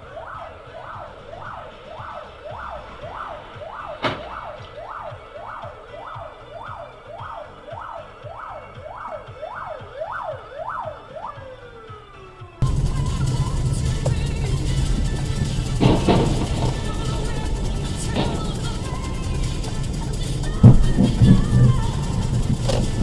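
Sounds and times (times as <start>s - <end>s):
police siren yelping: 0.0s - 23.0s.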